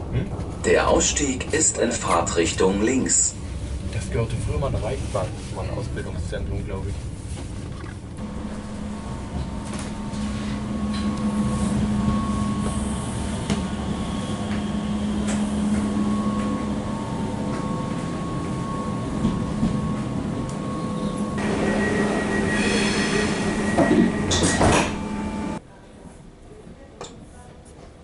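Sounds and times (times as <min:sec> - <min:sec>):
constant hum: 0:00.0 - 0:22.4
train wheels rumbling on rails: 0:08.2 - 0:25.6.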